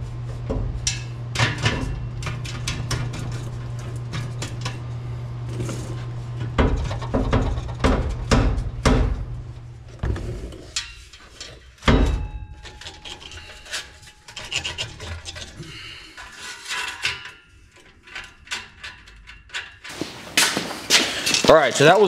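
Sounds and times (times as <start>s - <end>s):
metal pipe scraping against frame: 5.5s - 7.7s, 10.1s - 21.5s.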